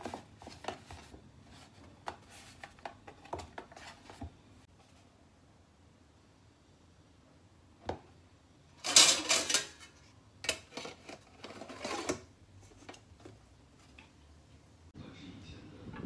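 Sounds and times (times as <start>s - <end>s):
metal lid clattering: 8.8s - 12.2s.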